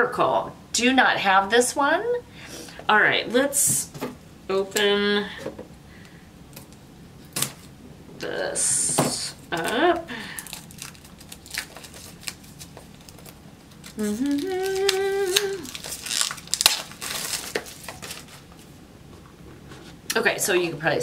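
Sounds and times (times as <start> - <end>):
plastic wrapping crinkling: 9.5 - 18.8
woman humming: 14.0 - 15.8.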